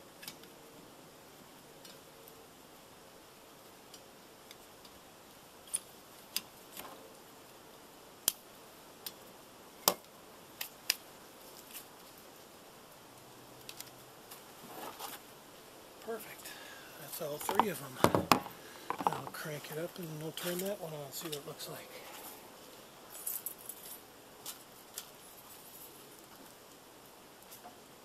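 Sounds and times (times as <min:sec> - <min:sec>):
soft rustling: 0:14.3 - 0:15.3, 0:16.0 - 0:26.6.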